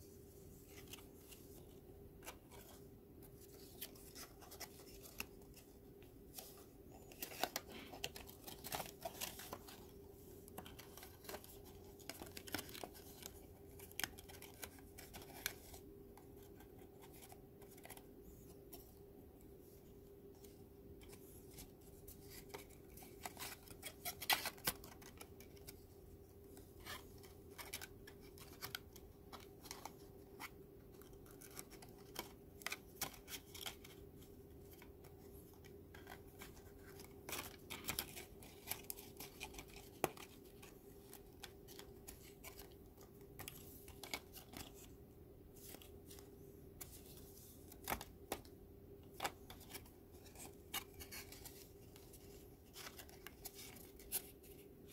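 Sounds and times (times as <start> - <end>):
stiff paper crackling and rustling: 6.3 - 18.1.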